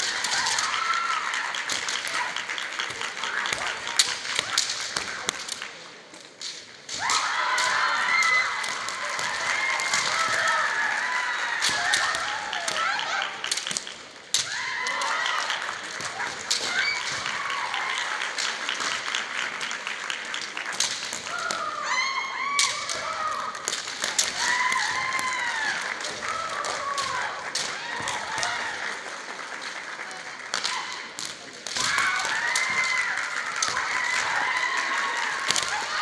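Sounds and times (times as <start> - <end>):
bamboo swords clacking: 0.0 - 10.6, 11.6 - 19.0, 20.4 - 21.8, 22.4 - 28.6, 30.5 - 34.4, 35.4 - 36.0
women shouting: 24.3 - 28.6.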